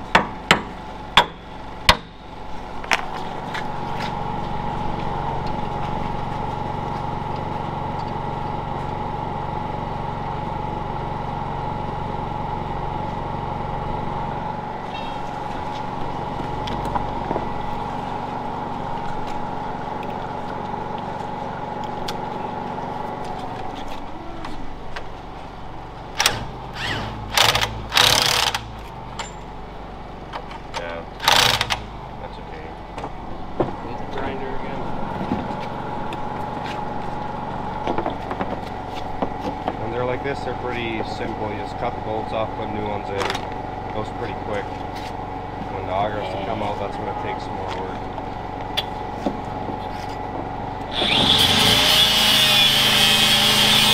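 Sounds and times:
angle grinder cutting bolt: 0:26.2 - 0:28.7, 0:31.2 - 0:31.8, 0:50.9 - 0:53.9.

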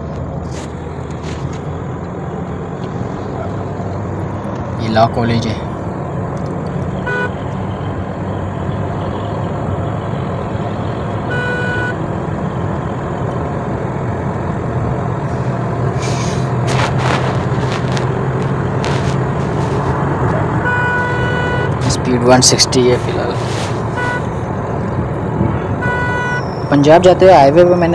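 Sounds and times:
in-cabin road and engine noise: 0:00.0 - 0:27.9
short rushes of noise: 0:15.3 - 0:20.0.

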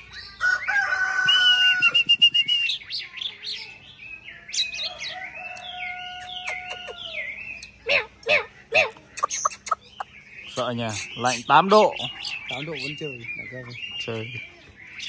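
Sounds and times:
bird singing clear whistles: 0:01.2 - 0:04.8, 0:09.2 - 0:14.3.

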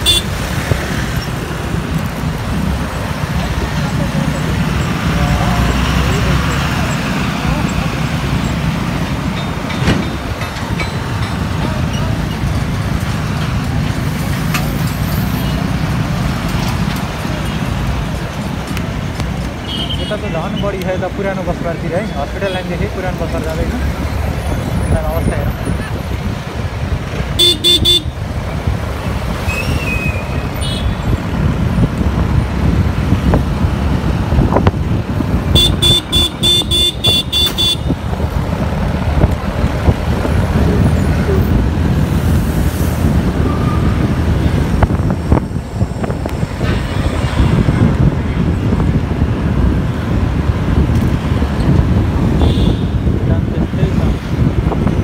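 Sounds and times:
horn tooting: 0:00.0 - 0:00.4, 0:27.4 - 0:28.2, 0:35.5 - 0:38.0, 0:52.4 - 0:53.1.

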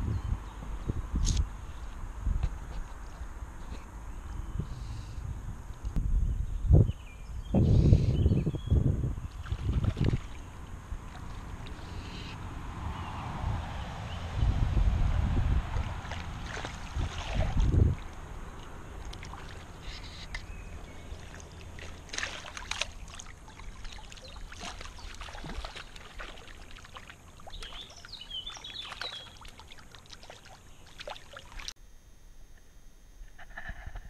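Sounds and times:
shallow water splashing: 0:09.3 - 0:12.3, 0:15.6 - 0:31.8.

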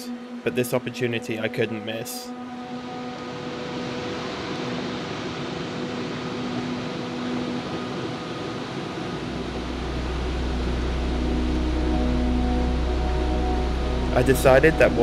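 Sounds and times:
steady sustained tones: 0:00.0 - 0:15.0
waterfall roaring: 0:00.0 - 0:15.0
deep low hum: 0:09.2 - 0:15.0.

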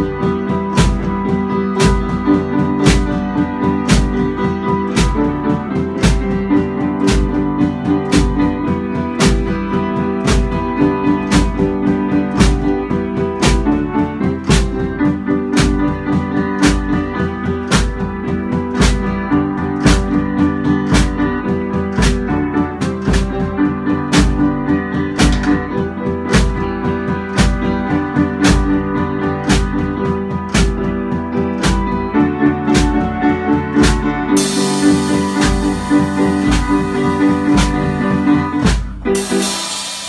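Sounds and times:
piano chords: 0:00.0 - 0:40.0
steady drum beat: 0:00.0 - 0:40.0
cymbal wash: 0:39.2 - 0:40.0.

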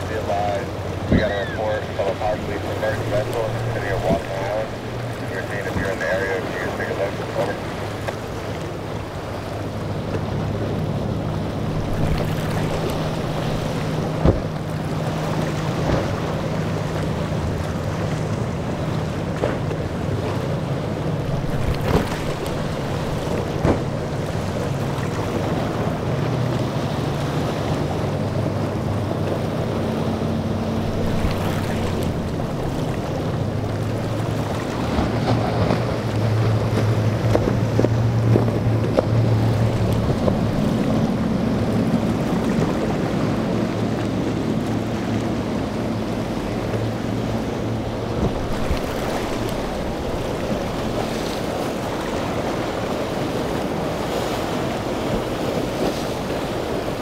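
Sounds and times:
boat engines droning: 0:00.0 - 0:57.0
waves splashing: 0:00.0 - 0:57.0
wind buffeting microphone: 0:28.0 - 0:43.8.

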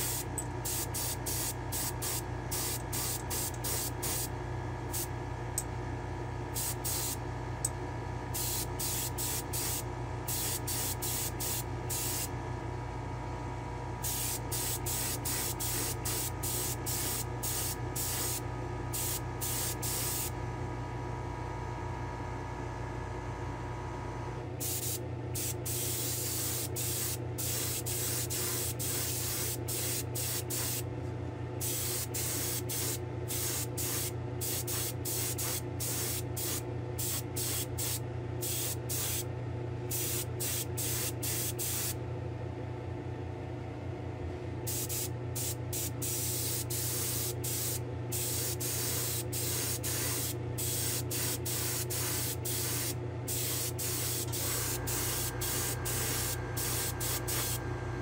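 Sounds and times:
airbrush hissing bursts: 0:00.0 - 0:04.3, 0:06.6 - 0:07.2, 0:08.4 - 0:12.3, 0:14.0 - 0:18.4, 0:24.6 - 0:30.8, 0:31.6 - 0:39.2, 0:40.0 - 0:41.9, 0:44.7 - 0:57.6
steady hum: 0:00.0 - 0:22.6, 0:23.6 - 0:42.1, 0:44.1 - 0:58.0.

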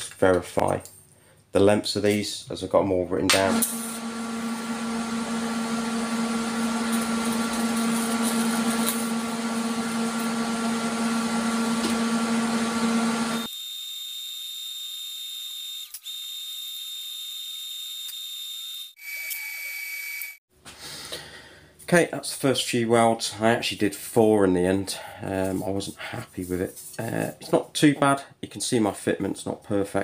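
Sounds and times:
machine hum: 0:03.4 - 0:13.5
welding arc buzz: 0:03.4 - 0:20.4.

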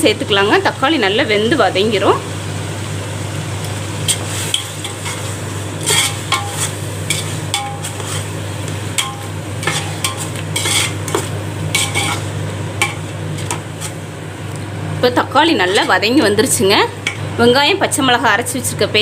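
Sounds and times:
tomatoes sizzling in oil: 0:00.0 - 0:19.0
metal spatula scraping pot: 0:04.1 - 0:08.4, 0:09.0 - 0:14.0.

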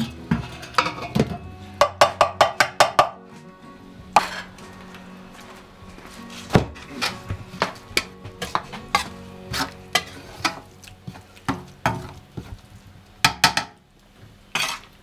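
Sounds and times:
metal utensil scraping frying pan: 0:00.0 - 0:01.4, 0:04.2 - 0:04.6, 0:08.0 - 0:12.2, 0:14.5 - 0:15.0.

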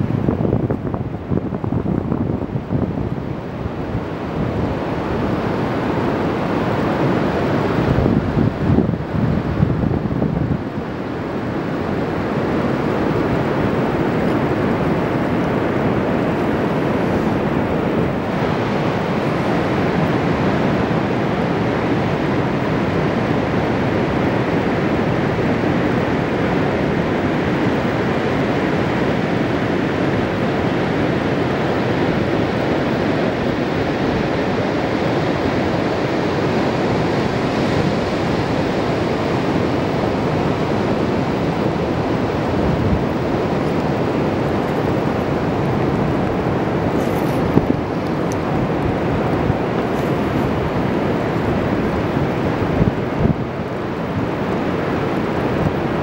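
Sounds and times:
ocean surf breaking: 0:00.0 - 0:56.0.

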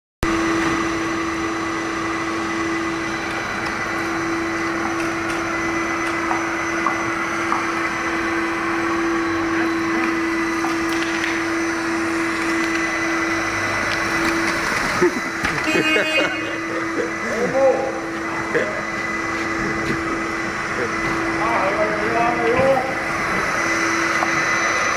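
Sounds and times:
vacuum cleaner motor whine: 0:00.2 - 0:24.9.

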